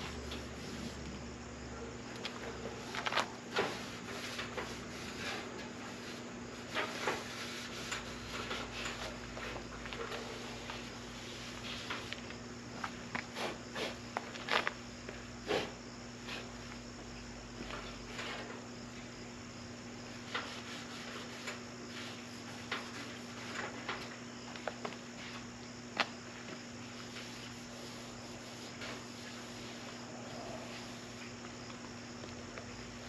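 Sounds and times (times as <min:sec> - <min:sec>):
steady background hum: 0:00.0 - 0:33.0
rag rubbing a metal panel: 0:02.4 - 0:09.2, 0:20.1 - 0:23.8, 0:27.0 - 0:30.0.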